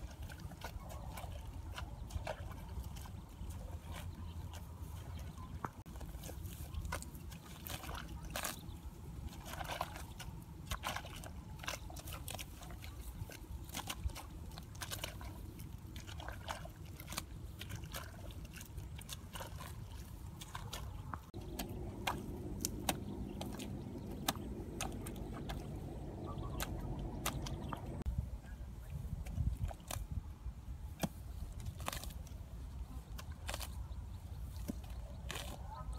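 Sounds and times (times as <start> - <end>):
muddy water squelching: 0.0 - 35.9
hoe chopping into wet mud: 21.4 - 25.6, 30.9 - 32.2.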